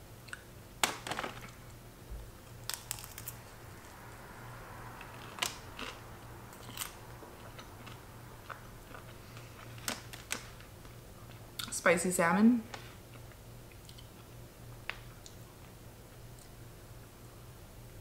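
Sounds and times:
chewing food: 6.6 - 11.7, 13.1 - 14.4.

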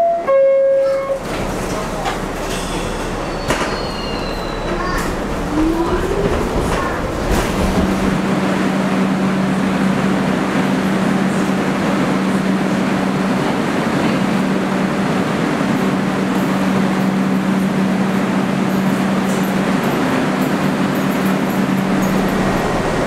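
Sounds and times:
station noise: 0.0 - 14.3, 21.3 - 23.0
subway train humming: 0.0 - 23.0.

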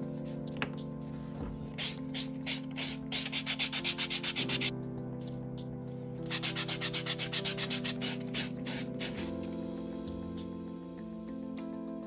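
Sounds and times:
background music: 0.0 - 12.0
sanding sponge scrubbing: 1.8 - 4.7, 6.3 - 9.3.

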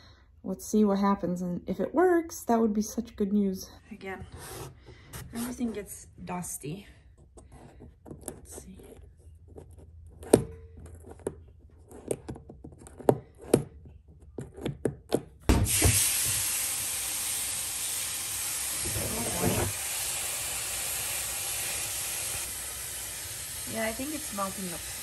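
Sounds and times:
thump: 15.5 - 16.0
heater hissing and sizzling in water: 15.5 - 25.0.

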